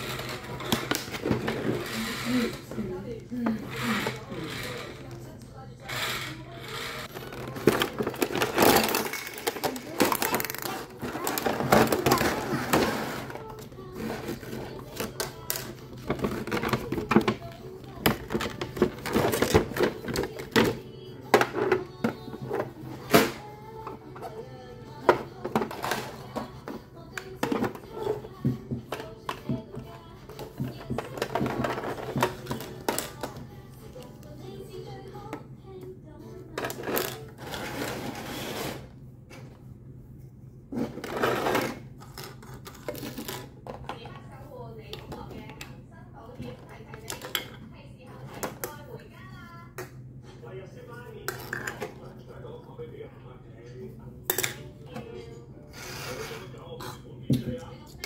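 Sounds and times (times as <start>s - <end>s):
plastic rustling: 7.0s - 23.1s.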